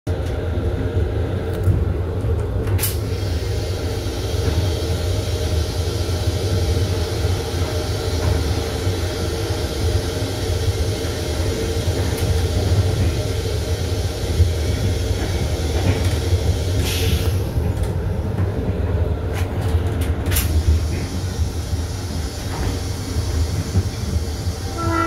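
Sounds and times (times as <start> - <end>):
train rumble and hum: 0.1 - 25.0.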